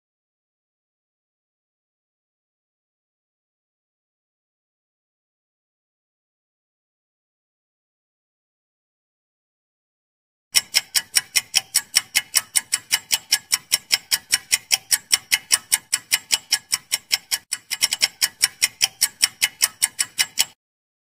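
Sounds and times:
fast clock ticking: 10.5 - 20.6.

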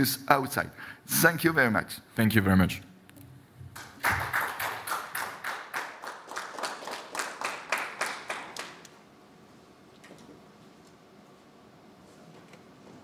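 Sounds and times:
people clapping: 3.7 - 9.0.

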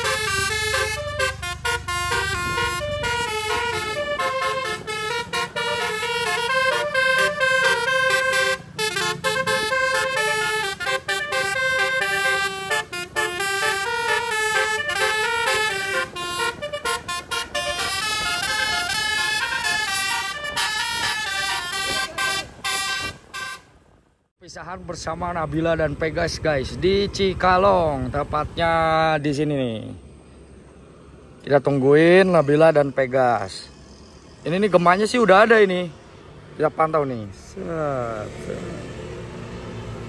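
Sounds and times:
bus horn playing a melody: 0.0 - 23.8.

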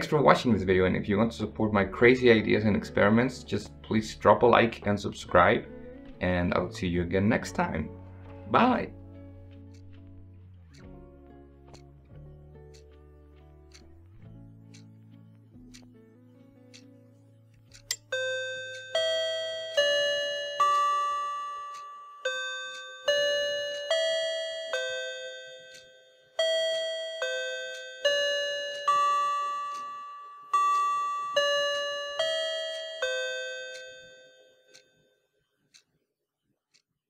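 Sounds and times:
slow bell-like melody: 17.9 - 35.3.

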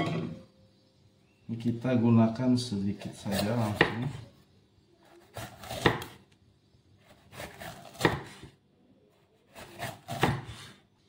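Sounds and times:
cleaver slicing pepper: 5.1 - 6.2, 7.0 - 8.5, 9.4 - 10.8.

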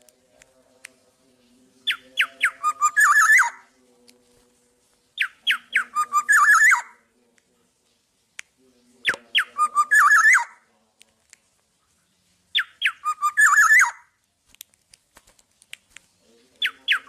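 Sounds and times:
bird singing whistled phrases: 1.9 - 3.6, 5.2 - 7.0, 9.0 - 10.6, 12.6 - 14.1, 16.6 - 17.0.

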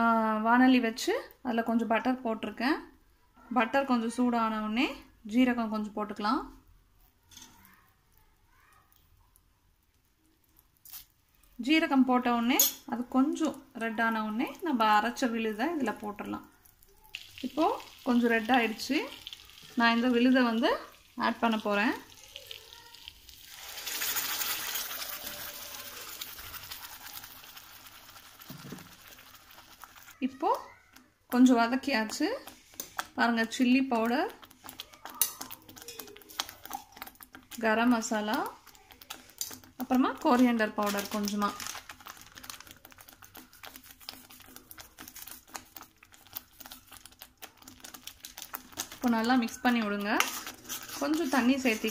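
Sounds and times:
paste sizzling in hot butter: 15.0 - 30.2, 32.1 - 51.9
plastic packet crinkling: 15.4 - 30.2, 34.1 - 51.9.

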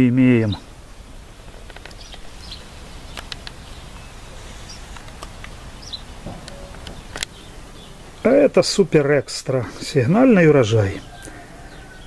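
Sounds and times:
faint bird chirps: 1.9 - 5.0, 5.7 - 8.5, 10.8 - 12.0
light clicks: 3.1 - 3.6, 4.9 - 5.6.

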